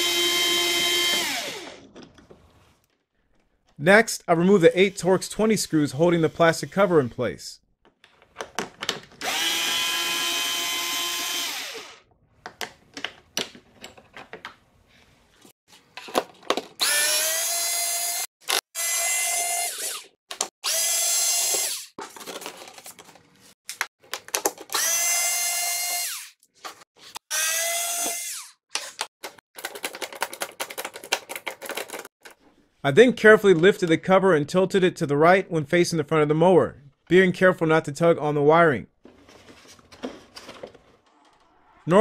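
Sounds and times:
cordless drill motor whining: 0.0s - 1.9s, 9.2s - 12.0s, 16.8s - 18.2s, 18.8s - 21.9s, 24.7s - 26.3s, 27.3s - 28.5s
handling clicks and clatter: 29.2s - 32.4s.

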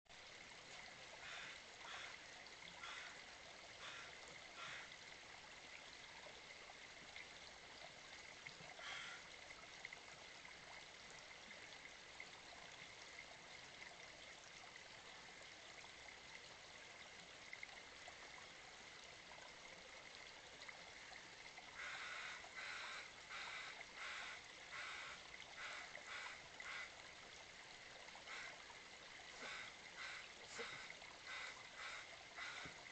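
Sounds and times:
creek trickling: 0.1s - 32.9s.

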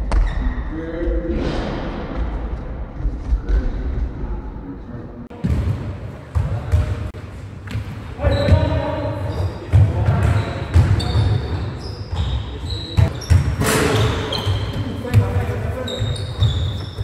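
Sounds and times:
sneakers squeaking: 5.4s - 17.0s.

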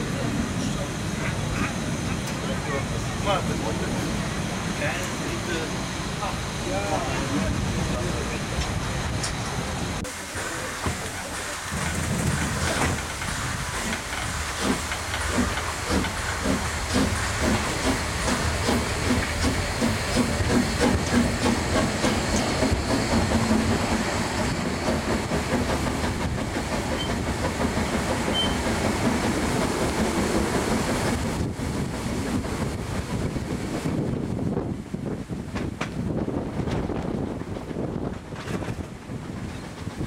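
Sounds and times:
steam hissing: 0.0s - 34.5s
train running noise: 0.0s - 40.0s
steam locomotive exhaust chuffs: 10.2s - 34.4s.

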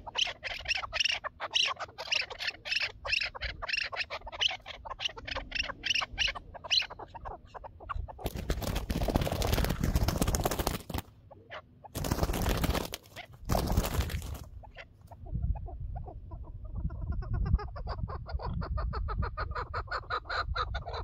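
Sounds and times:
partridge calling chuk notes: 0.0s - 8.2s
loud wing flapping: 8.2s - 11.1s, 12.0s - 14.5s.

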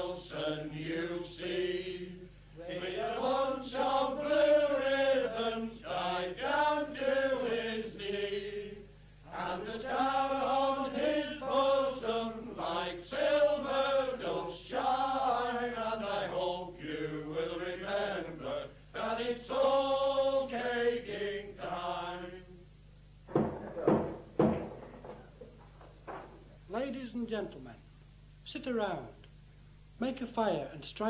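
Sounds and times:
voices singing folk song: 0.0s - 22.8s.

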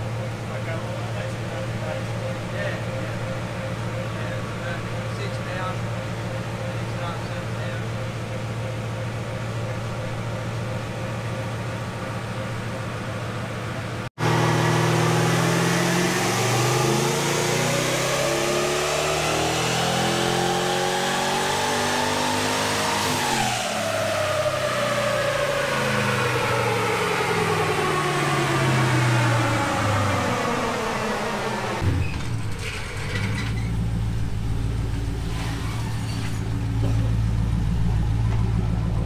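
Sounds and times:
car engine idling and revving: 0.0s - 39.0s.

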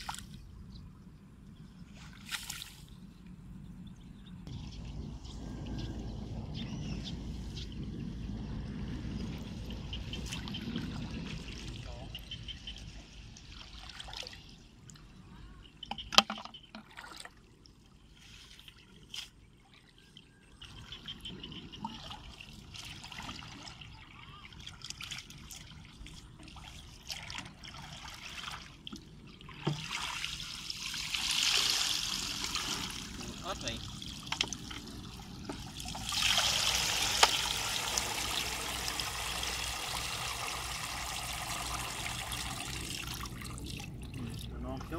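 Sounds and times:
water trickling and sloshing: 0.0s - 44.9s
small splashes and knocks: 2.0s - 2.9s, 15.8s - 17.5s, 24.6s - 37.6s.

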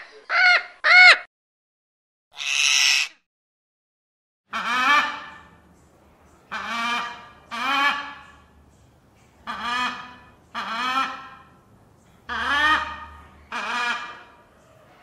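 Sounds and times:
parrot squawking: 2.4s - 3.2s.

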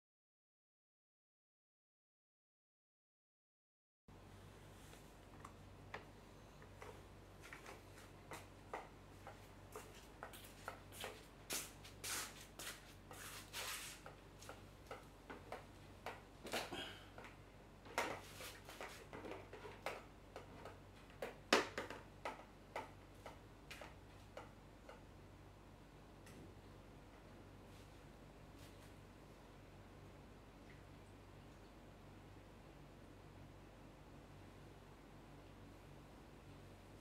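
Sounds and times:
faint low hum: 4.1s - 12.0s, 12.6s - 37.0s
flip-flop footsteps: 7.4s - 16.7s.

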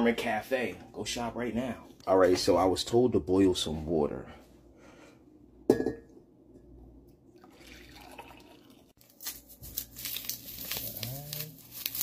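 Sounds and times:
water pouring into a mug: 7.4s - 9.0s.

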